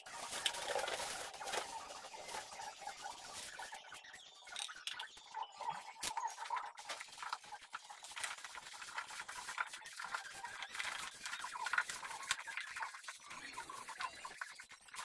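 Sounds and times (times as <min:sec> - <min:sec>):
hands mixing mash in a bucket: 0:00.0 - 0:03.8, 0:05.9 - 0:15.0.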